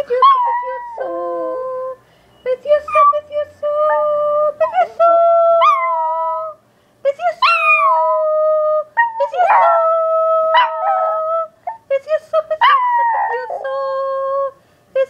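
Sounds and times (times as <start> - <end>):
small dog howling: 0.1 - 1.8, 5.6 - 6.6, 7.4 - 8.4, 9.0 - 11.8, 12.6 - 14.0
dog yips: 5.6 - 6.1, 7.4 - 8.2.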